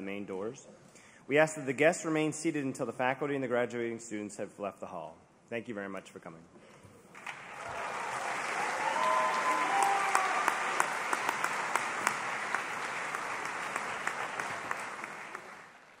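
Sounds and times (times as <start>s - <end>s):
audience applauding: 7.2s - 16.0s
voices cheering: 7.6s - 15.6s.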